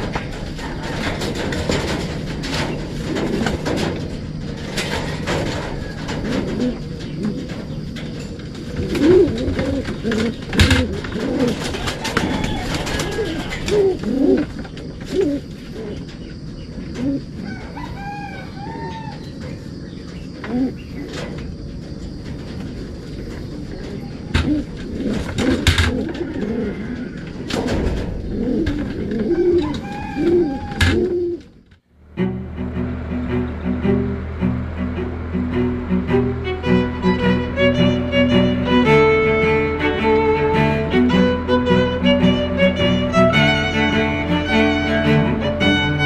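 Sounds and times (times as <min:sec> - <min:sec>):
wing flaps: 0:00.0 - 0:16.2, 0:20.5 - 0:31.6
pigeons cooing: 0:00.0 - 0:31.6
sharp knocks: 0:27.4 - 0:29.8.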